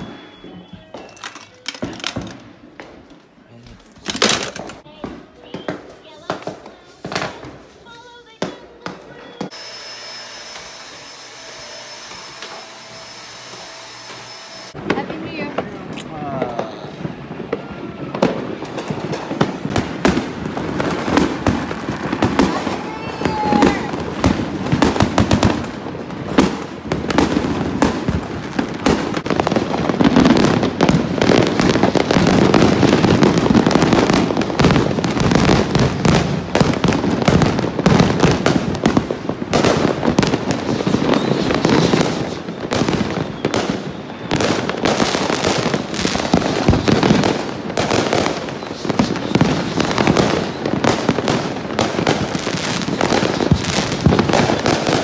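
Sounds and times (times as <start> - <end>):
fireworks and firecrackers banging: 0.0 - 55.0.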